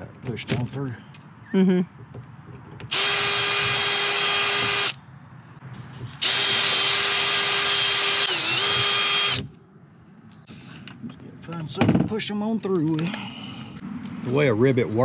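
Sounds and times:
cordless drill drilling rivets: 2.8s - 5.0s, 6.2s - 9.5s.

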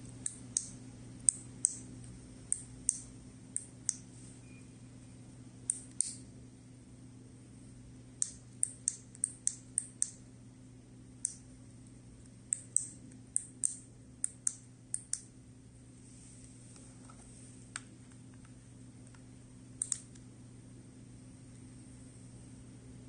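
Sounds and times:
faint steady hum: 0.0s - 23.0s
remote buttons clicking: 19.8s - 20.3s.

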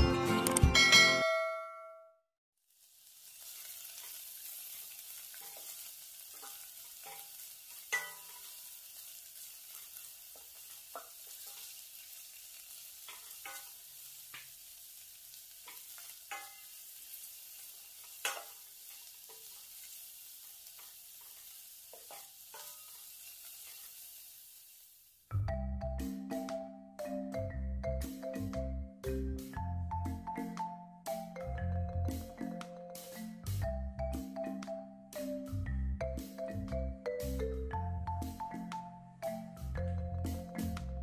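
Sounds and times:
vegetables sizzling in a pot: 2.6s - 25.4s, 36.2s - 38.8s
spatula scraping and tapping pot: 3.6s - 8.7s, 9.4s - 11.8s, 12.8s - 14.6s, 15.6s - 16.8s, 18.0s - 23.9s.

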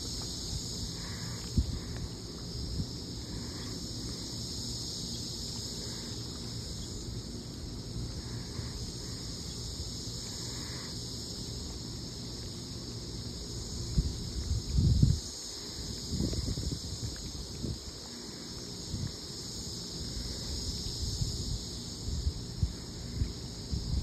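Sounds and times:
wind rumble on microphone: 0.0s - 3.6s, 13.8s - 19.3s, 20.1s - 24.0s
insect chorus: 0.0s - 24.0s.

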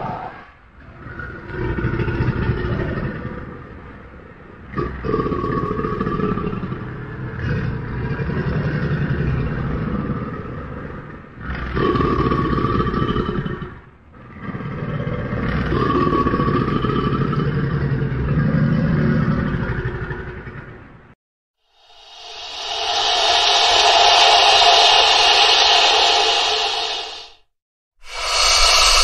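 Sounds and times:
alligator growling: 0.8s - 20.8s.

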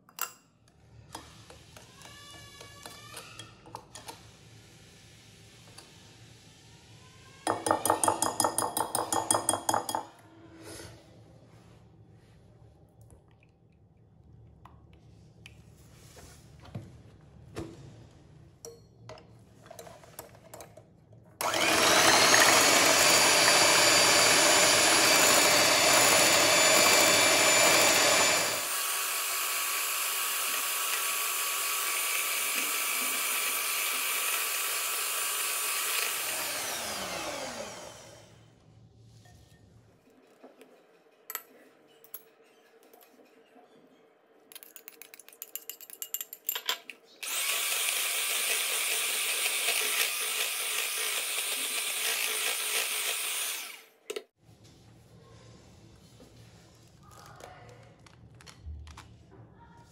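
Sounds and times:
electric hand mixer whine: 21.4s - 38.4s, 47.2s - 54.0s.

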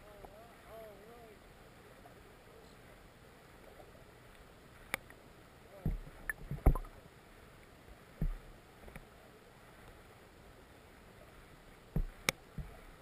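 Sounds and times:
sharp underwater clicks: 4.3s - 5.2s, 5.9s - 6.9s, 12.0s - 12.7s
muffled low thuds: 5.8s - 6.9s, 8.2s - 8.5s, 11.9s - 12.8s.

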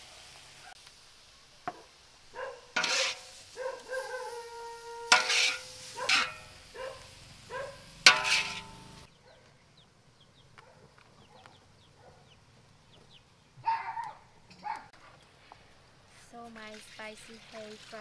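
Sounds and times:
food knocking and scraping bowl: 2.8s - 3.3s, 5.1s - 6.5s, 8.1s - 9.1s.

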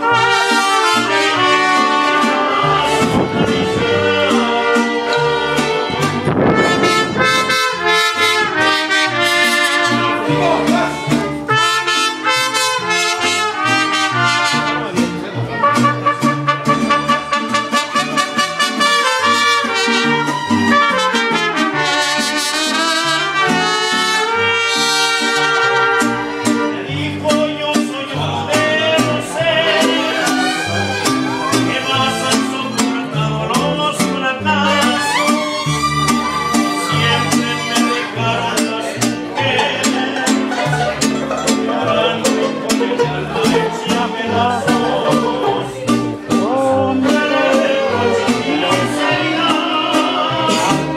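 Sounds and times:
trumpets playing melody: 0.0s - 10.6s, 11.4s - 26.9s, 34.6s - 38.2s
mariachi band playing: 0.0s - 50.9s
violins playing melody: 35.1s - 38.1s.

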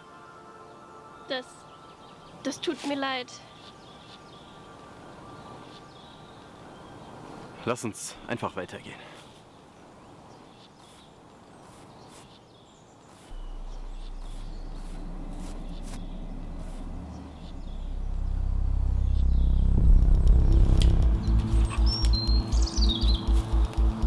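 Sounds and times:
faint woodland ambience: 0.0s - 24.0s
bird chirps: 10.3s - 19.8s, 21.1s - 24.0s
deep bass drone: 13.3s - 24.0s
tonal film score swell: 13.3s - 24.0s.

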